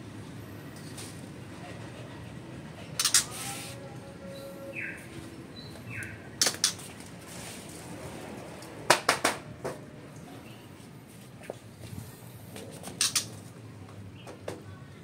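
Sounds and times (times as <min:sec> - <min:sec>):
bird cage clicks and rattles: 0:06.4 - 0:06.9, 0:13.0 - 0:13.4.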